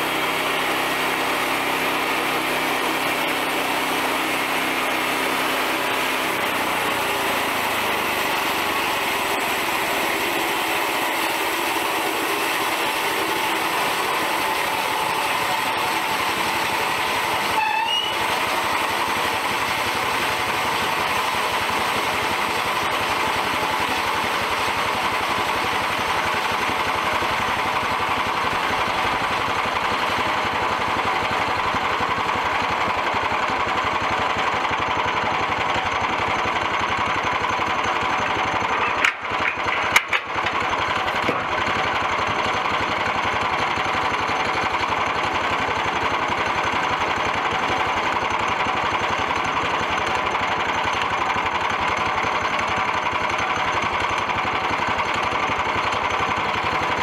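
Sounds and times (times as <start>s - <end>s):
small gasoline engine running: 0.0s - 57.0s.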